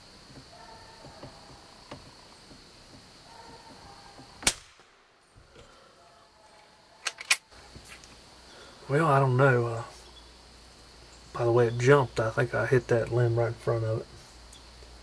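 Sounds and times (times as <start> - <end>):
rifle shot: 4.4 - 5.1.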